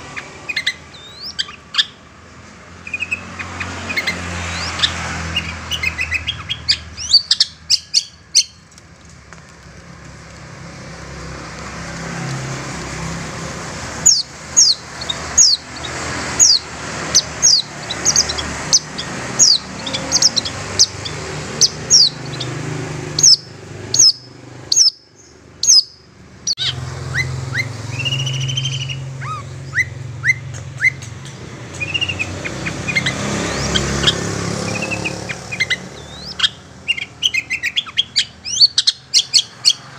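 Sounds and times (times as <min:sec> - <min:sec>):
shrike chirping: 0:14.0 - 0:39.9.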